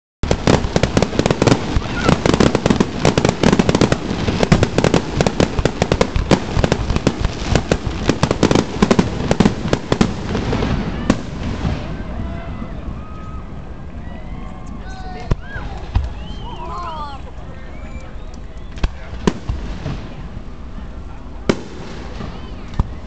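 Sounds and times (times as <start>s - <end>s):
fireworks bursts: 0.2s - 12.2s, 18.7s - 23.0s.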